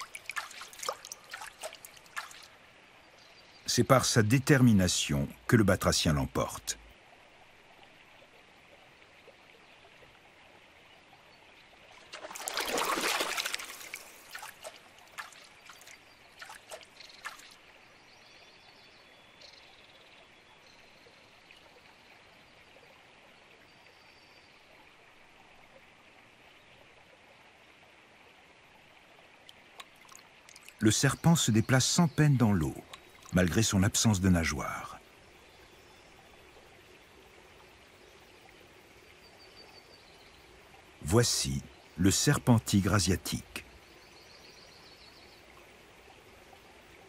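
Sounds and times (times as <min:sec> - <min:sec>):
frog splashing into water: 0:00.0 - 0:02.5, 0:12.0 - 0:17.6
water droplets dripping: 0:00.0 - 0:02.6, 0:11.9 - 0:17.6, 0:29.4 - 0:35.0
faint steady background noise: 0:00.0 - 0:47.0.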